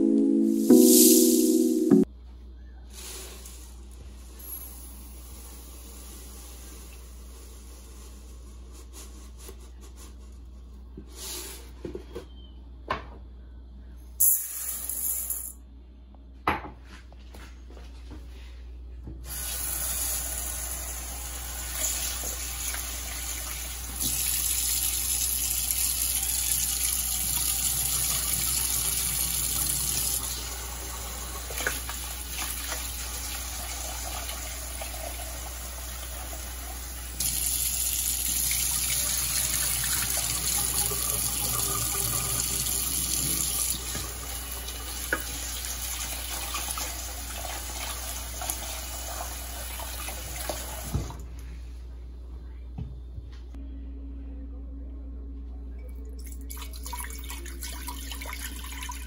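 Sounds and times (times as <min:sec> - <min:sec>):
tap water running into bowl: 0:21.8 - 0:51.1.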